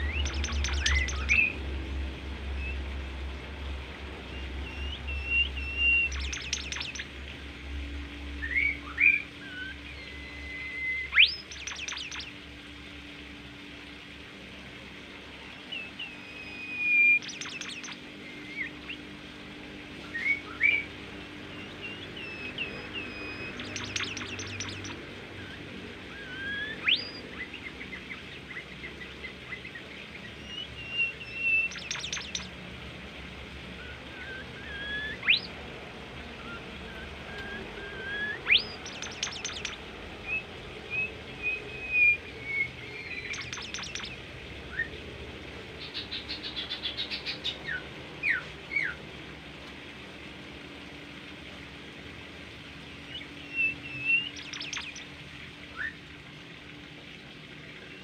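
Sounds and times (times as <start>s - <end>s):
songbird whistling: 0.0s - 1.6s, 4.6s - 7.1s, 8.4s - 12.3s, 15.7s - 19.0s, 20.0s - 20.9s, 21.5s - 25.5s, 26.1s - 27.5s, 30.3s - 32.5s, 33.8s - 35.5s, 36.4s - 45.0s, 53.1s - 55.1s
bird rattling trills: 0.1s - 1.5s, 5.8s - 7.1s, 11.2s - 12.3s, 17.1s - 18.0s, 22.2s - 25.0s, 31.2s - 32.5s, 38.4s - 39.8s, 43.0s - 44.2s, 54.1s - 55.0s.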